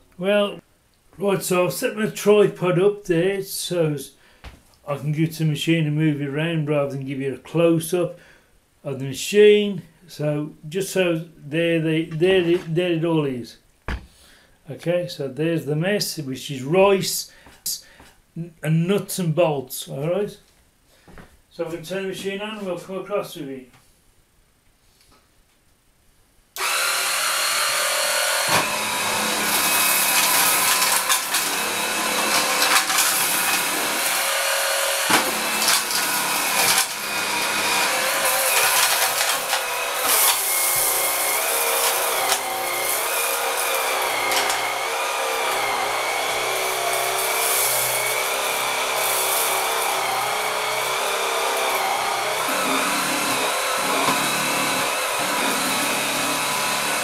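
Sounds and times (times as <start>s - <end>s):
sweeper motor whining: 26.6s - 57.0s.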